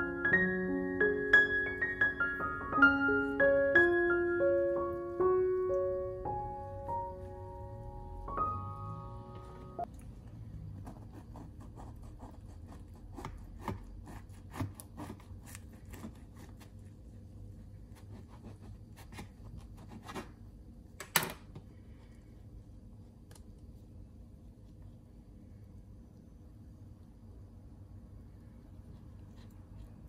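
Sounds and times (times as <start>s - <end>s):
knife sawing through crusty bread: 10.8s - 16.9s, 17.9s - 20.4s.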